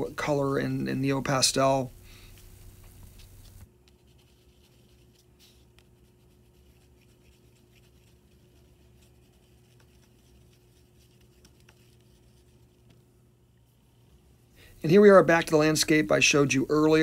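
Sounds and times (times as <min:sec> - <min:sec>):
faint steady hum: 0:00.0 - 0:17.0
pastel stick scratching on canvas: 0:03.0 - 0:13.1.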